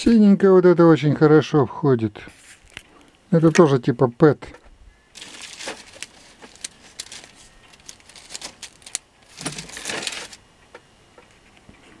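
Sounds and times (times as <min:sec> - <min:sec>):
plastic strip crinkly rustling: 0:05.2 - 0:10.4.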